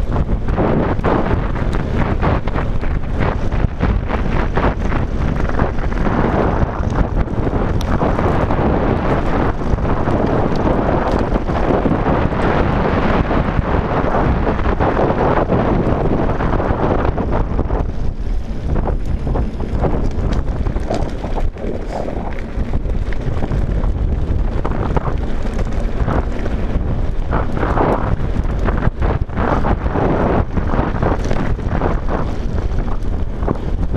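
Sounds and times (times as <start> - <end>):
bike clattering over stones: 0.0 - 33.9
tyres crunching on gravel: 0.0 - 33.9
wind buffeting microphone: 0.0 - 33.9.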